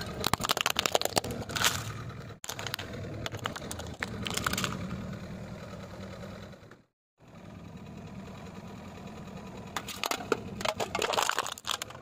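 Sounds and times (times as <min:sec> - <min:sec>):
drink can crunching under tyre: 0:00.0 - 0:04.8, 0:09.8 - 0:12.0
car engine idling: 0:00.0 - 0:12.0.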